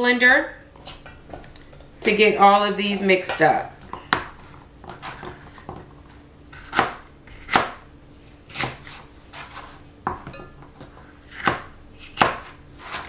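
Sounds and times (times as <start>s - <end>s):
knife chopping on plastic board: 4.1s - 5.9s, 6.5s - 7.8s, 8.5s - 13.0s.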